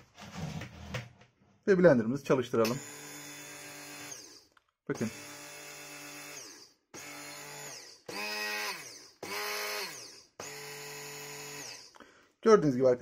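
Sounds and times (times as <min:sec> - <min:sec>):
hand blender motor running in bursts: 0:02.8 - 0:12.0.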